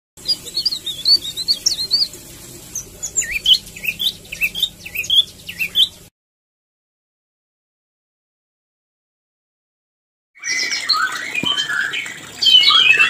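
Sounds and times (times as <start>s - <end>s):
songbirds chirping: 0.2s - 6.1s, 10.6s - 13.0s.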